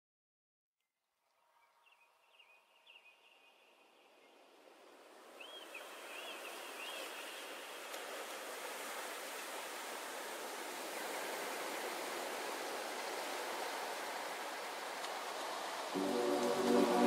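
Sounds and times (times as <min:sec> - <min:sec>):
flowing water rushing: 0:04.8 - 0:17.0.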